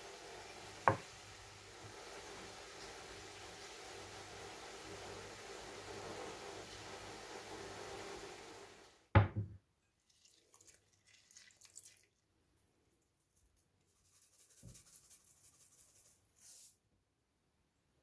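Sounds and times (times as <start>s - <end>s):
steady hiss: 0.0s - 9.1s
loud thud: 9.2s - 9.5s
seasonings sprinkling into bowl: 13.4s - 16.8s.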